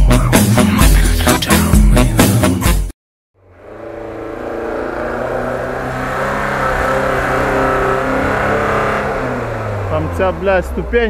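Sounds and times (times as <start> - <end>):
vehicle engine running: 3.4 - 11.0.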